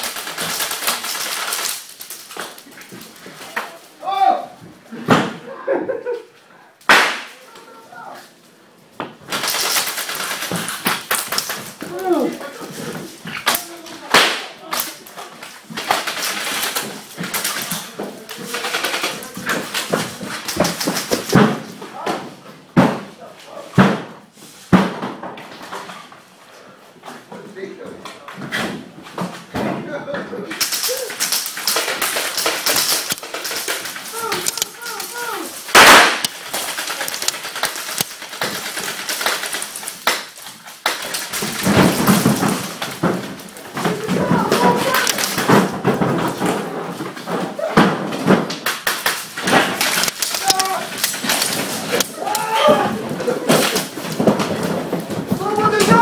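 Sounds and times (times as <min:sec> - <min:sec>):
sharp clicks: 0:30.6 - 0:41.4, 0:44.8 - 0:45.4, 0:49.0 - 0:52.5
airsoft shots cracking: 0:35.6 - 0:38.1.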